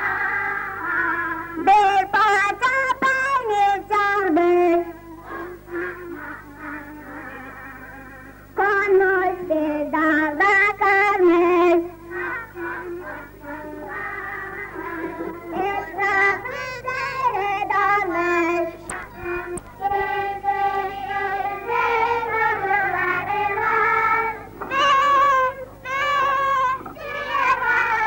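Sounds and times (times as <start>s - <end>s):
children singing: 0.0s - 2.6s, 3.4s - 28.0s
accordion: 11.8s - 28.0s.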